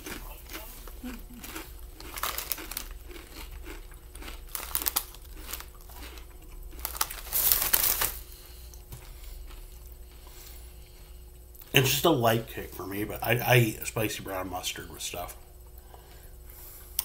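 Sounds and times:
chip bag crinkling: 0.0 - 9.9.

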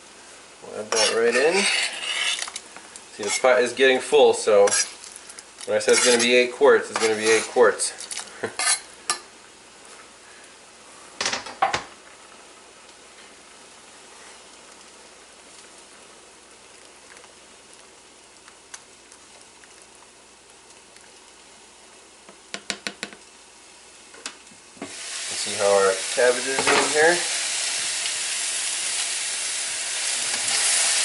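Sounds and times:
cabbage sizzling in a pan: 0.0 - 31.0
soft stirring ticks: 16.7 - 21.4.

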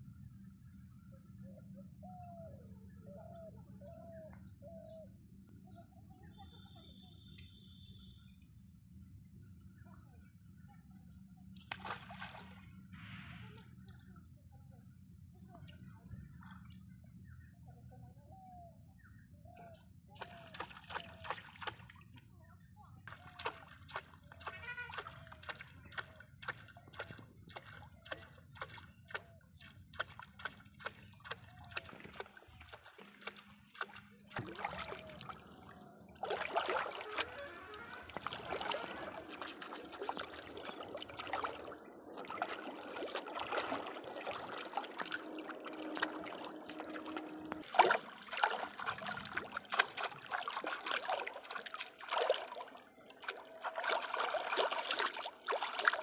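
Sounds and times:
feet wading through water: 11.5 - 13.1, 19.6 - 22.2, 23.1 - 56.0
fish thrashing and splashing: 20.2 - 22.0, 23.1 - 56.0.

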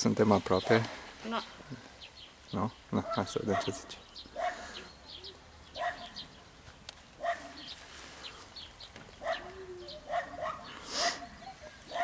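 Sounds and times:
small birds chirping: 0.0 - 12.0
dog barking: 3.0 - 4.7, 5.8 - 6.2, 7.2 - 7.7, 9.2 - 12.0.

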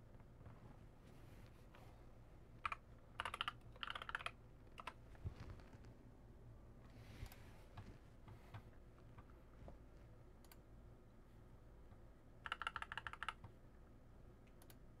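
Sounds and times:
keyboard typing: 2.6 - 5.0, 12.4 - 13.6.

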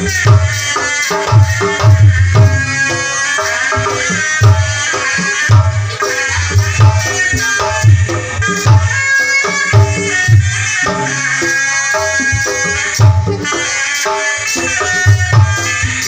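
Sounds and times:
reedy shawm melody: 0.1 - 16.0
deep drum beats: 1.2 - 13.7.

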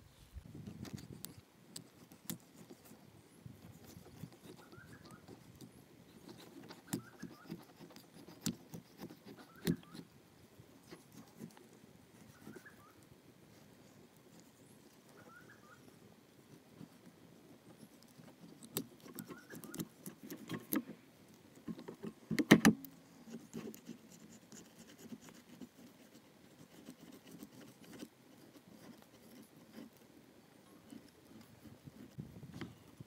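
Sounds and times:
rustling: 10.8 - 33.0.

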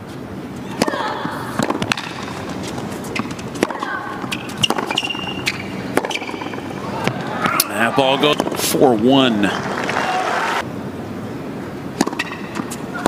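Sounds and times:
tennis ball bouncing: 0.7 - 7.7, 8.3 - 8.7, 12.0 - 13.0
tennis ball striking rackets: 0.7 - 7.7, 8.3 - 8.8, 12.0 - 13.0
murmur of crowd: 6.6 - 10.6.

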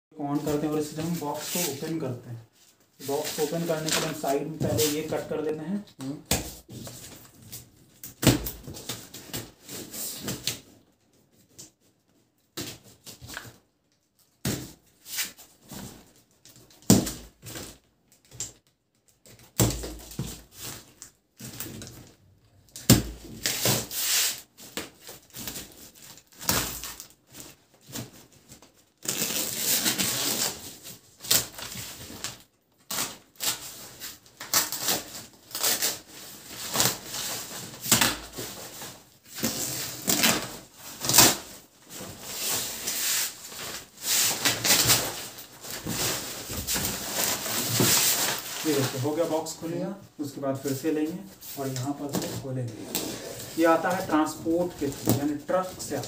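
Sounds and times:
plastic crinkling and tearing: 51.0 - 56.0.

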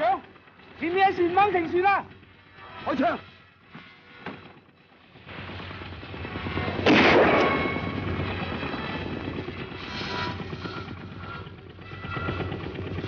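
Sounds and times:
rifle shot with echo: 6.8 - 7.8.

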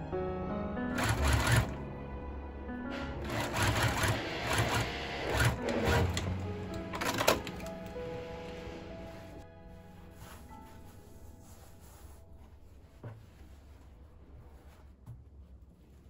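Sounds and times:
sewing machine stitching: 0.9 - 1.8, 3.2 - 7.7.

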